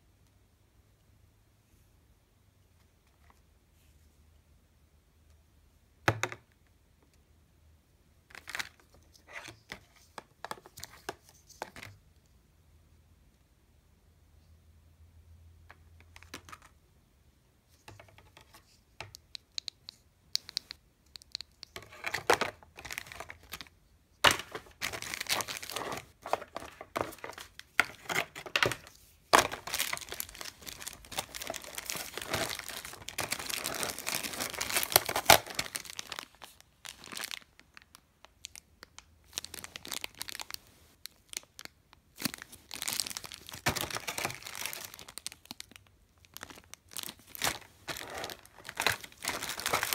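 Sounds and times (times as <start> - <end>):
plastic bags crinkling: 21.8 - 23.7, 24.3 - 38.6, 39.3 - 49.9.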